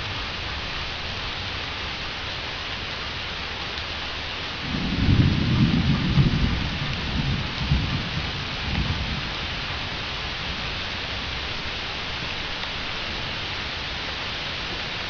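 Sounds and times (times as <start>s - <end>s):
steady rain falling: 0.0s - 15.0s
thunder rumbling: 4.6s - 11.4s.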